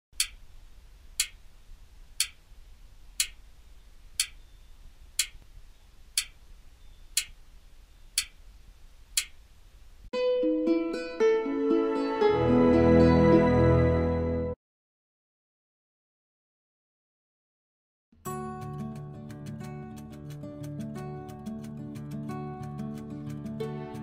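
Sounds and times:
wall clock ticking: 0.2s - 0.5s, 1.1s - 1.4s, 2.2s - 2.4s, 3.2s - 3.4s, 4.2s - 4.4s, 5.2s - 5.4s, 6.2s - 6.4s, 7.1s - 7.4s, 8.2s - 8.4s, 9.2s - 9.4s
gentle plucked music: 10.2s - 14.5s, 18.2s - 24.0s.

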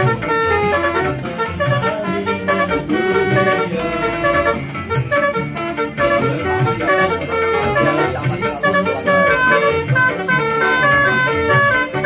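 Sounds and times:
multi-tone air horn melody: 0.0s - 12.0s.

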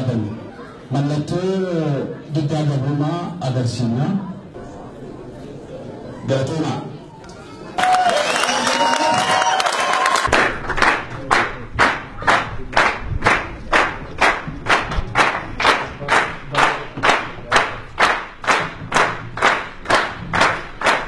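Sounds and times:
crowd clapping in unison: 7.8s - 21.0s.

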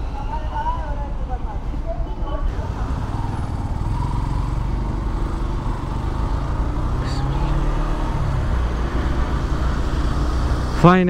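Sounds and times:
motorcycle engine running: 2.2s - 11.0s.

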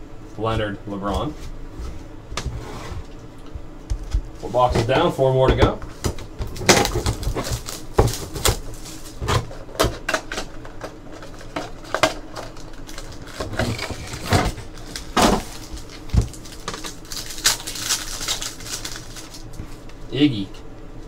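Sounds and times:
cardboard and packaging rustling: 4.0s - 20.0s.

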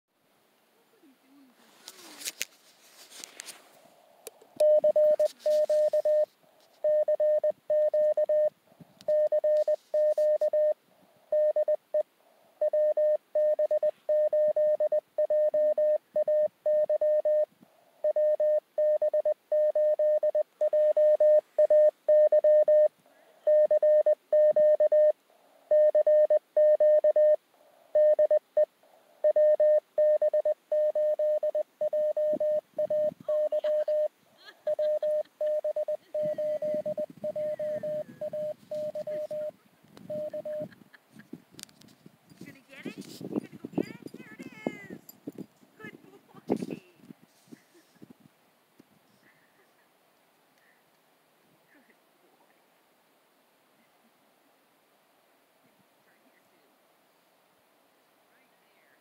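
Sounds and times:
morse code tone: 4.6s - 8.5s, 9.1s - 12.0s, 12.6s - 22.9s, 23.5s - 34.1s, 34.7s - 39.5s, 40.1s - 40.7s.

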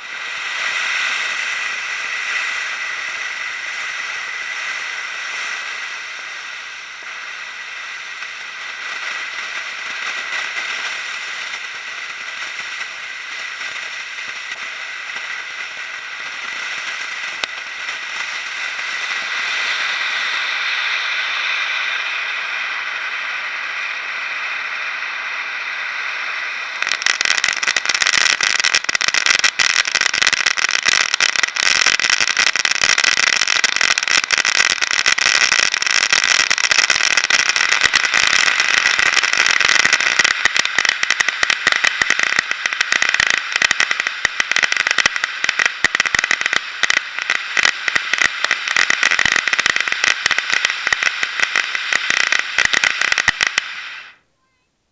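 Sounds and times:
fountain firework hissing: 0.0s - 54.6s
dense firework crackling: 0.0s - 54.7s.

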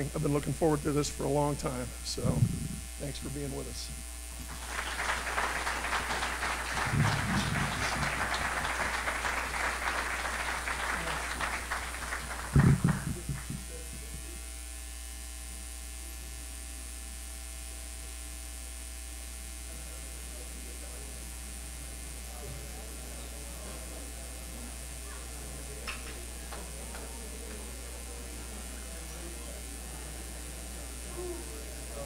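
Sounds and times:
steady low hum: 0.0s - 32.0s
low thumps: 2.2s - 2.9s, 12.5s - 14.2s
audience applauding: 4.4s - 13.9s, 25.8s - 27.9s.

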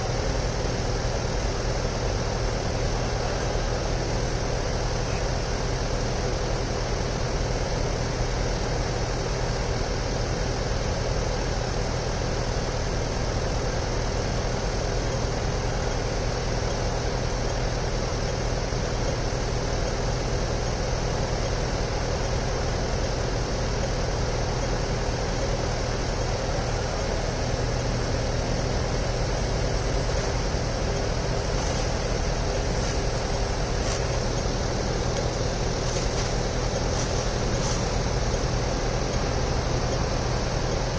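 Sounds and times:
traffic rush: 28.5s - 38.3s.

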